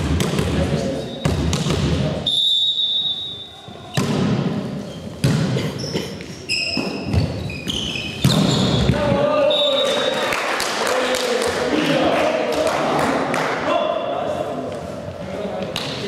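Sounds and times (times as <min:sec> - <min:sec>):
shoes squeaking on floor: 0:04.7 - 0:10.0.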